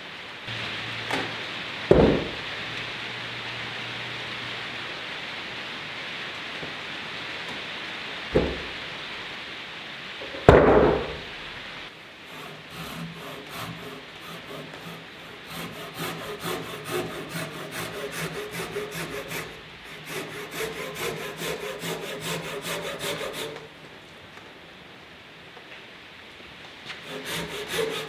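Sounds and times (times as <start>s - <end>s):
heavy wooden knock: 1.9s - 2.4s, 8.3s - 8.7s, 10.5s - 11.2s
pull saw rasping through wood: 12.3s - 23.7s, 27.0s - 28.0s.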